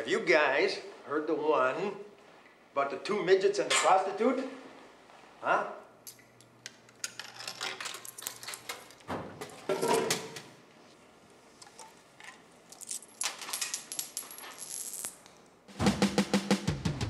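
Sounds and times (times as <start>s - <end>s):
coins clinking and jingling: 12.7s - 15.2s.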